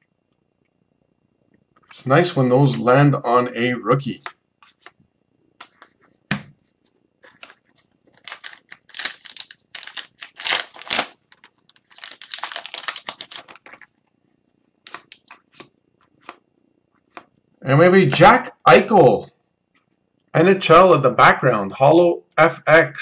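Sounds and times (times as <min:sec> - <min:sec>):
cards sliding and handled: 0:04.6 - 0:05.0, 0:05.6 - 0:08.8, 0:14.9 - 0:16.4
foil wrapper crinkling and tearing: 0:07.2 - 0:14.0.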